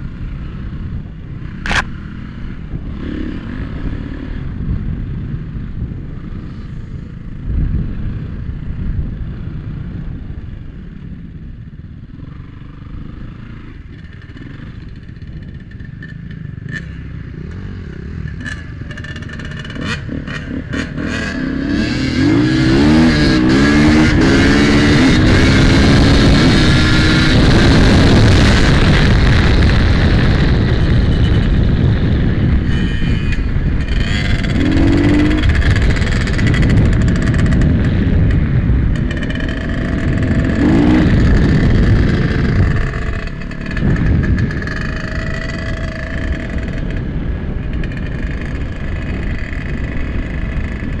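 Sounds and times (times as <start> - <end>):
wind noise: 0.0 - 12.2, 12.9 - 51.0
dirt bike engine revving: 16.0 - 51.0.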